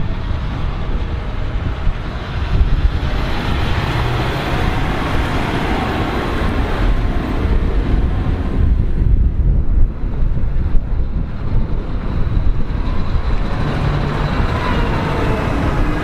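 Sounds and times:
tractor driving past: 1.8 - 8.8, 11.7 - 16.0.

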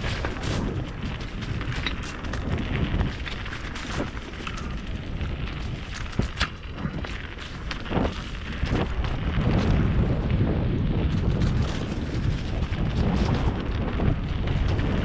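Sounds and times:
bike clicks and knocks: 0.0 - 15.0
bike tyres rumbling: 0.0 - 15.0
wind on microphone: 0.0 - 15.0.

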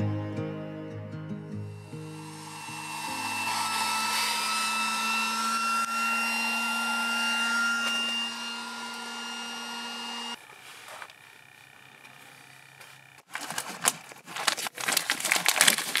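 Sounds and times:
electric blower whooshing air: 1.6 - 13.1.

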